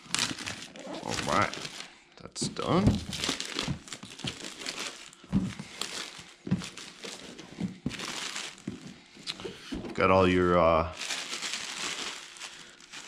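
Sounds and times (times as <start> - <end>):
plastic wrap crinkling: 0.0 - 13.0
soft thuds: 2.5 - 4.5, 5.3 - 10.0.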